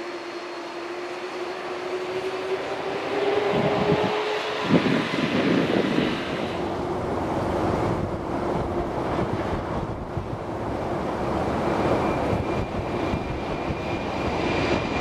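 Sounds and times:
jet engines whining: 0:00.0 - 0:08.1, 0:09.8 - 0:15.0
wind buffeting microphone: 0:03.2 - 0:15.0.

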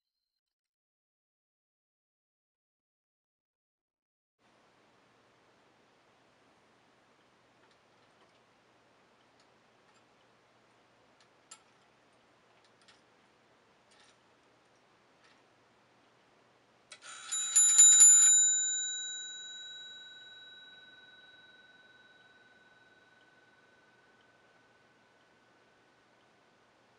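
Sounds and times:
hammer striking brass bell: 0:17.0 - 0:24.9.

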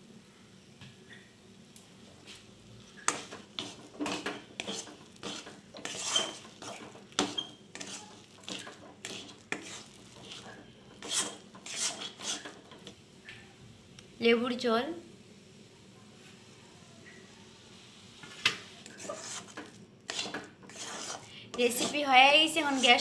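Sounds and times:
metal spatula scraping a pan: 0:02.2 - 0:13.0, 0:18.8 - 0:23.0.

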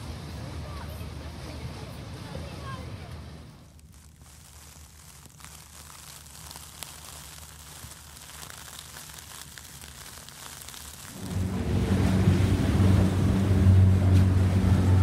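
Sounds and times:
faint crackling hiss: 0:00.0 - 0:14.4
small ticks: 0:03.8 - 0:11.2
motorboat engine running: 0:11.2 - 0:15.0.

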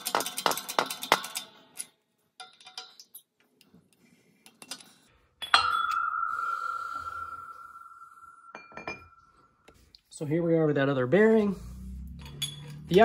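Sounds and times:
metal socket clanging and ringing: 0:05.4 - 0:06.7, 0:08.5 - 0:09.2, 0:12.2 - 0:13.0.

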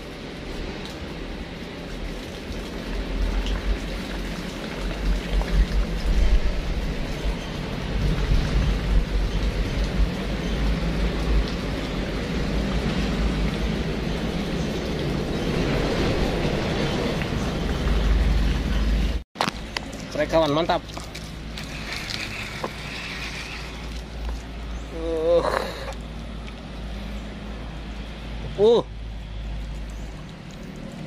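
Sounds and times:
steady rushing noise: 0:04.9 - 0:19.2.

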